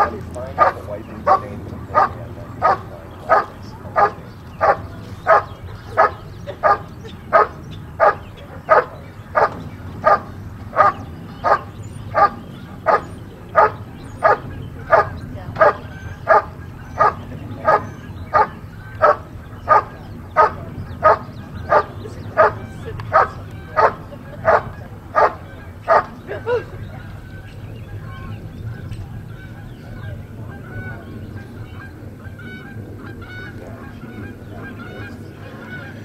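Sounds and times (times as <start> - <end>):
dog barking: 0.0 - 26.6.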